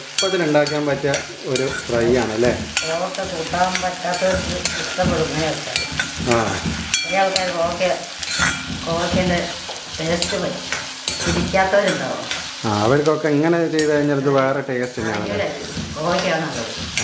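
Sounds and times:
vegetables sizzling in a wok: 0.0s - 17.0s
ladle clinking on pan: 3.7s - 7.6s, 8.2s - 9.2s.

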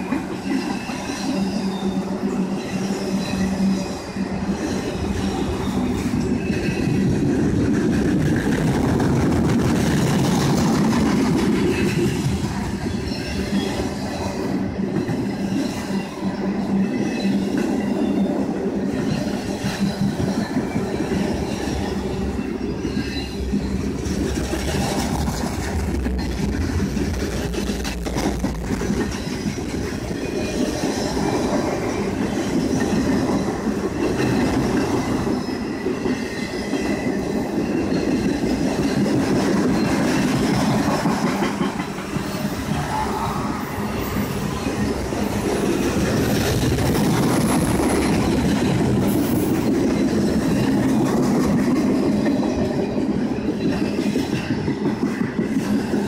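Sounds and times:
high wheel squeal: 0.0s - 7.2s, 11.6s - 25.0s, 41.9s - 48.4s
train wheels rumbling on rails: 0.0s - 56.0s.

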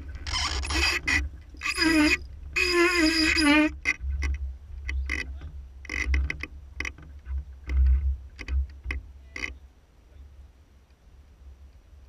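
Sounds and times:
wooden boat fittings clicking: 0.0s - 9.6s
wind rumble on microphone: 0.0s - 12.0s.

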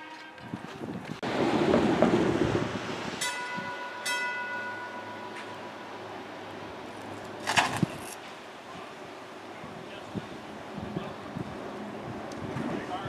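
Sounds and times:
trolley bell ringing: 3.2s - 6.3s.

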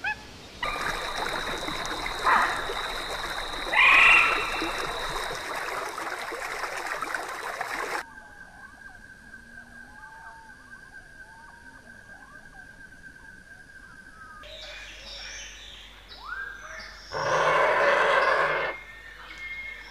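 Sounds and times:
gliding bird calls: 0.0s - 5.4s, 17.1s - 19.9s
loud harsh animal call: 3.7s - 4.8s, 17.1s - 18.9s
bird chirps: 14.4s - 19.9s.

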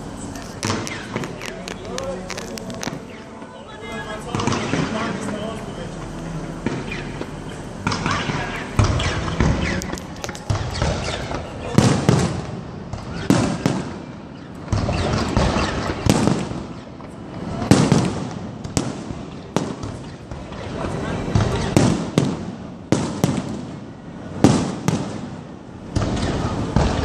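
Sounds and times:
firework crackling: 0.0s - 27.0s
firework shells bursting: 0.4s - 3.2s, 6.6s - 17.0s.

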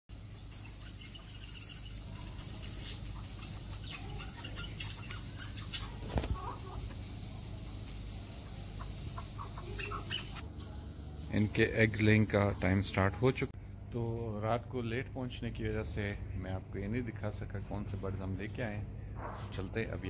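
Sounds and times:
birds chirping: 0.1s - 13.5s
steady high hiss: 0.1s - 13.6s.

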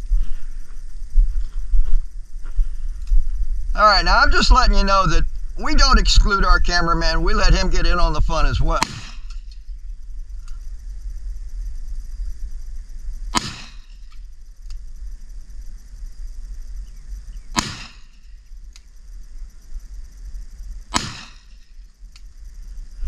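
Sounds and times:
revolver shots with echo: 8.8s - 9.2s, 13.4s - 13.9s, 17.6s - 18.1s, 21.0s - 21.5s.

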